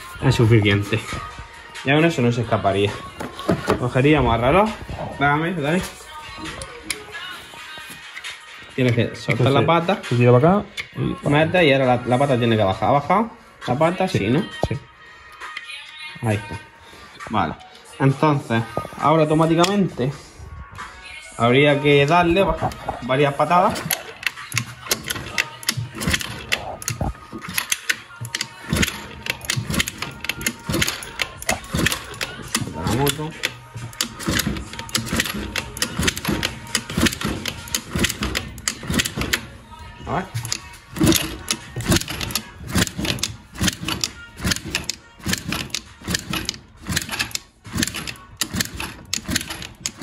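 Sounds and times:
scooter engine kickstarted clattering: 0:02.7 - 0:04.8, 0:22.1 - 0:50.0
mechanical clicking: 0:23.7 - 0:39.6, 0:40.3 - 0:50.0.

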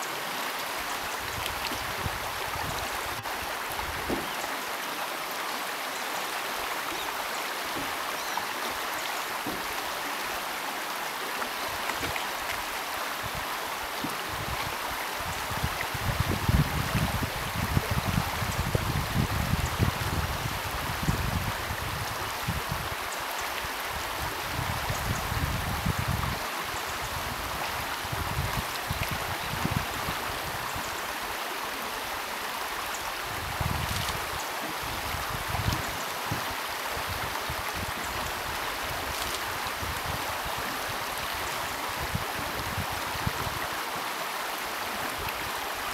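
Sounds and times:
river rushing over gravel: 0:00.0 - 0:45.9.

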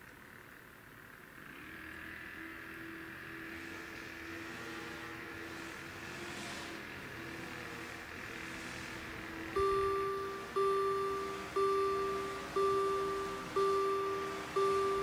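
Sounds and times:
level crossing warning bell: 0:09.6 - 0:15.0.

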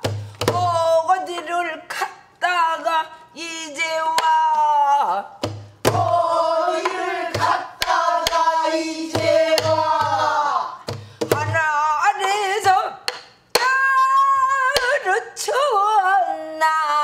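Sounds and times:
woman singing with vibrato: 0:09.0 - 0:13.0, 0:13.6 - 0:17.0.

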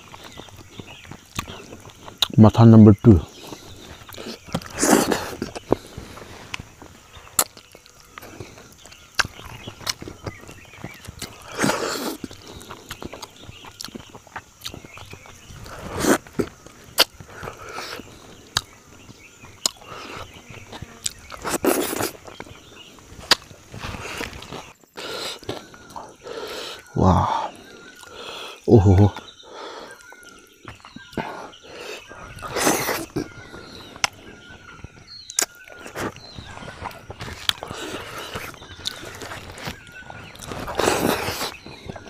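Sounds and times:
wet mouth sounds: 0:31.1 - 0:33.4.

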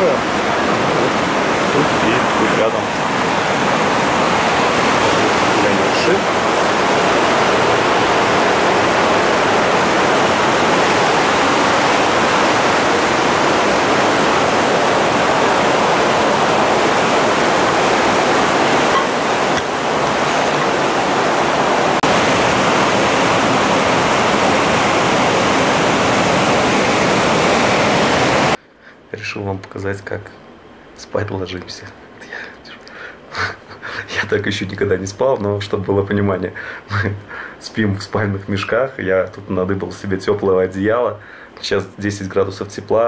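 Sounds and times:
river rushing over rocks: 0:00.0 - 0:28.6.

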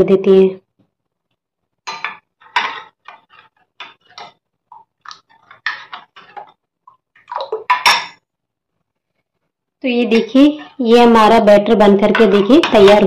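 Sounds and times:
spoon scraping glass bowl: 0:01.9 - 0:04.4.

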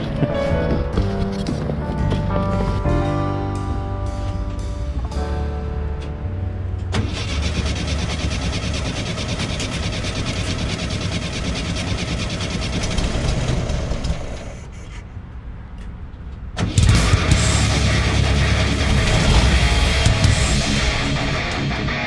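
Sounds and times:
heavy metal guitar music: 0:00.0 - 0:07.8, 0:16.6 - 0:22.0
car engine running: 0:06.0 - 0:14.4, 0:16.8 - 0:22.0.

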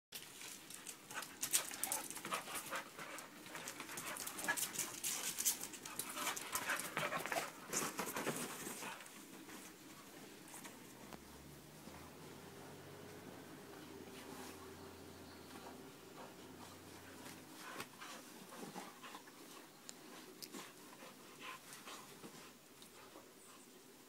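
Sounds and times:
dogs scuffling: 0:00.2 - 0:12.2, 0:15.4 - 0:23.3.

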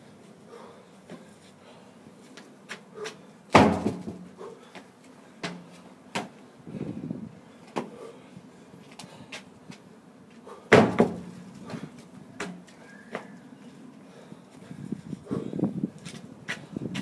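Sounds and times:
heavy tire thudding on ground: 0:03.5 - 0:04.3, 0:10.7 - 0:11.4.

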